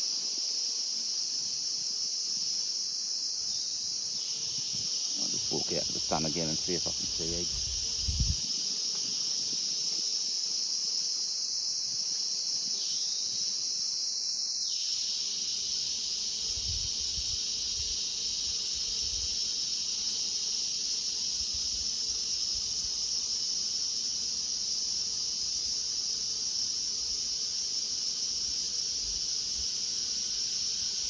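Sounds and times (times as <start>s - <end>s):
insects chirring: 0.0s - 31.0s.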